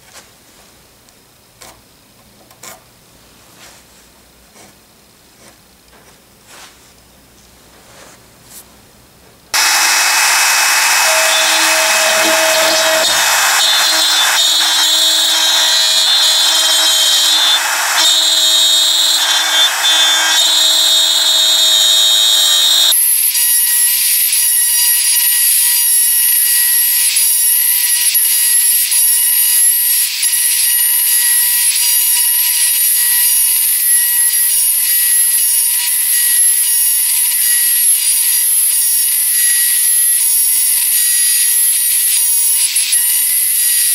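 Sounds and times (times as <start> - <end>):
trim router cutting wood: 9.6 - 43.9.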